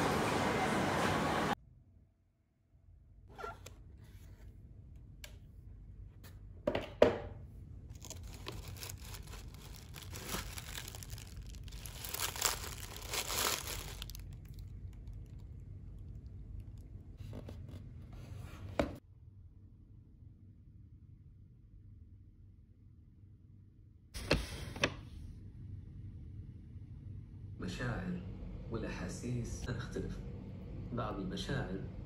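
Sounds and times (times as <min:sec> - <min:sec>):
tissue paper rustling: 0:07.9 - 0:14.3.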